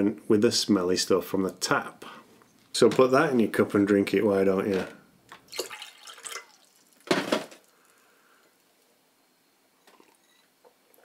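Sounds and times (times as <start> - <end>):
water pouring into a glass: 5.4 - 8.0.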